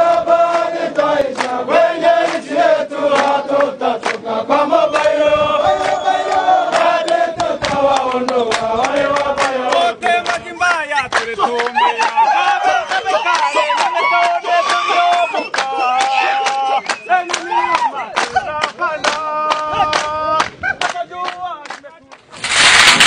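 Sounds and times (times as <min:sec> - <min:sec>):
men chanting in unison: 0:00.0 - 0:21.6.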